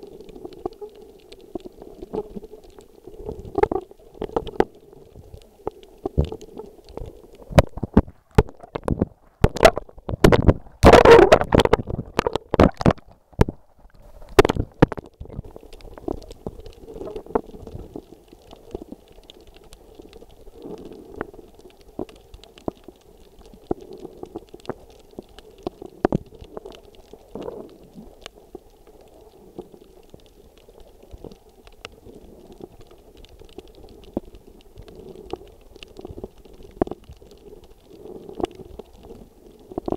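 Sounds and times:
rush of water: 6.1 - 18.1.

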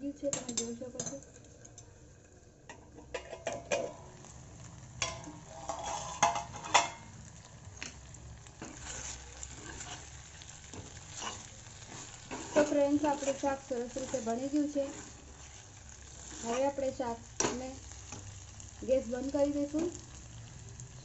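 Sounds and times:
light sizzle of frying: 0.0 - 21.0
spoon clinking and scraping pan: 0.3 - 1.2, 2.7 - 4.0, 5.0 - 7.1, 8.6 - 16.7.

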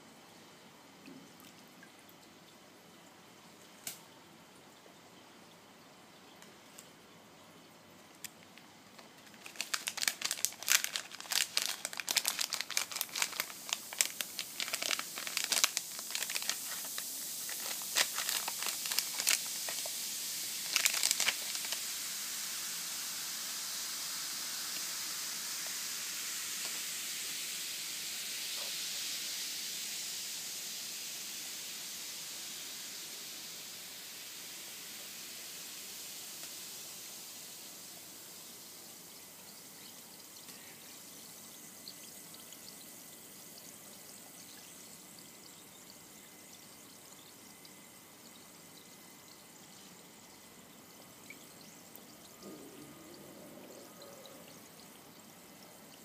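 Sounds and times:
foil sachet crinkling and tearing: 9.0 - 20.0, 20.6 - 21.9
fizzing hiss in water: 9.0 - 45.0.

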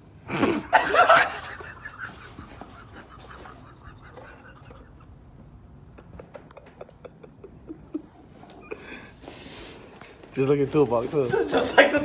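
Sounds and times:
stifled laughter: 0.3 - 9.2.

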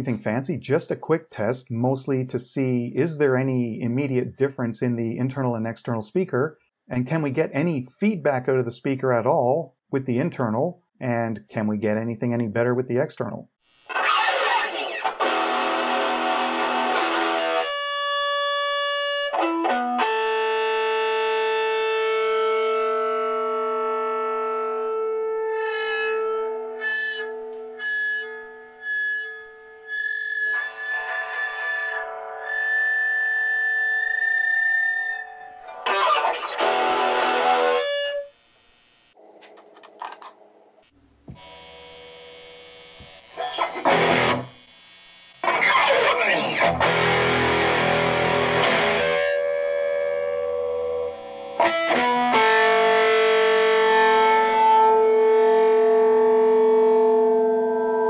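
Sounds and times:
distorted electric guitar: 13.6 - 58.0
guitar feedback: 13.7 - 58.0
amp hum: 35.1 - 58.0
quiet picked guitar notes: 45.4 - 58.0.

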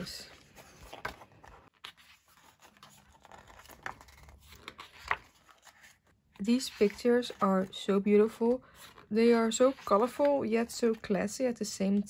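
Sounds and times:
paper packaging rustling: 0.0 - 8.0
pages being turned: 0.0 - 11.2.

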